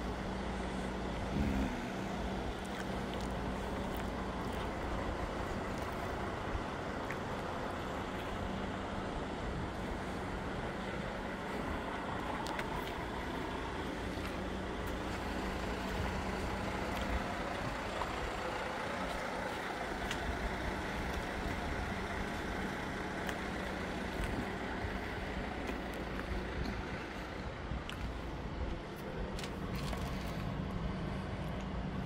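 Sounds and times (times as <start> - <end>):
diesel truck engine idling: 0.0 - 32.0.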